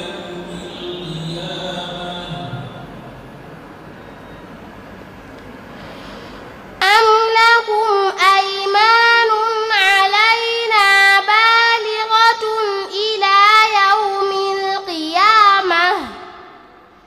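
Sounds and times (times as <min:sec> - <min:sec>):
girl chanting recitation: 0:06.8 - 0:16.6.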